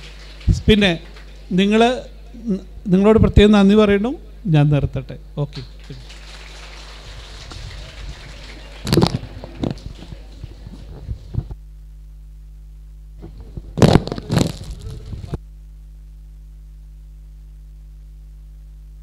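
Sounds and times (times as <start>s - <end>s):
electrical mains hum: 0.0s - 19.0s
microphone handling rustles and bumps: 7.4s - 11.7s, 13.2s - 15.4s.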